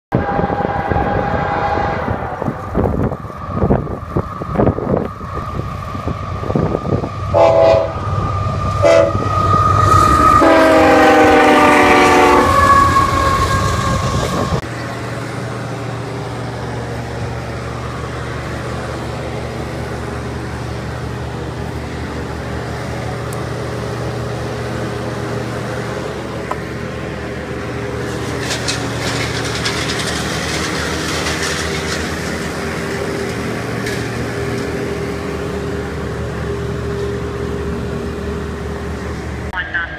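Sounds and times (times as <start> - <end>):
train horn blasts: 0.1 - 2.8, 7.3 - 14.6
train rumble: 0.1 - 39.9
low engine rumble: 0.2 - 39.9.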